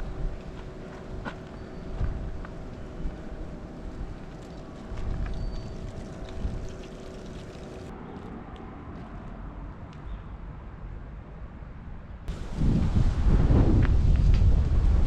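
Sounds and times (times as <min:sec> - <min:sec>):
wind rumbling on microphone: 0:00.0 - 0:07.9, 0:12.3 - 0:15.0
construction machinery hum: 0:00.0 - 0:08.4.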